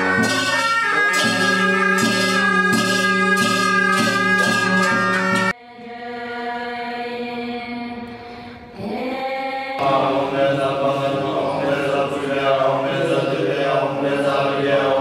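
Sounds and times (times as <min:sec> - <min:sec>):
monks chanting in unison: 0:09.8 - 0:15.0.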